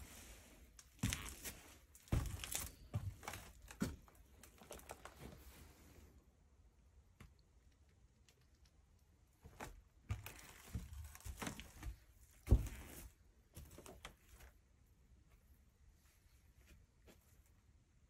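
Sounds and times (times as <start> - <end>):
footsteps on wooden floor: 1.0 - 4.0, 11.8 - 12.9.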